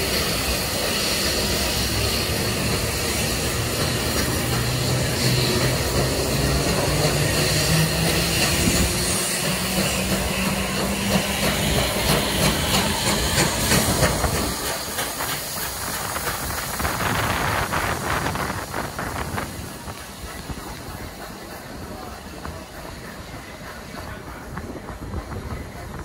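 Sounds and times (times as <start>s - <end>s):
steam hissing: 0.0s - 26.0s
train rumble: 0.0s - 26.0s.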